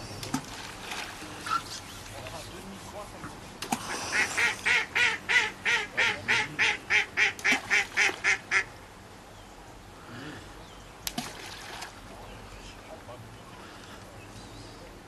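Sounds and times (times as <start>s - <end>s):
waterfowl calling: 3.9s - 8.7s.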